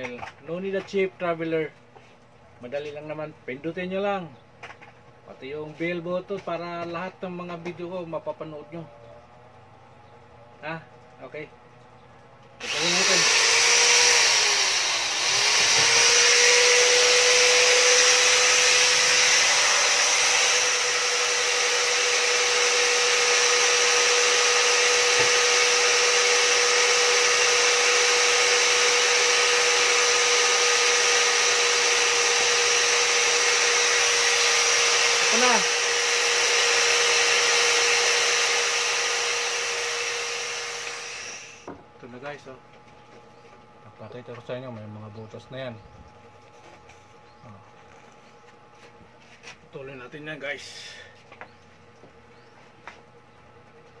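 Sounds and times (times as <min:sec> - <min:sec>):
electric drill whining: 0:12.6 - 0:41.7.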